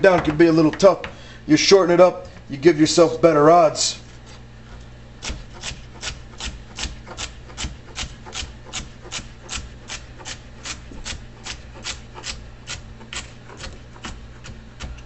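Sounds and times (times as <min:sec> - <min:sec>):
knife chopping on wooden board: 0:05.2 - 0:15.0.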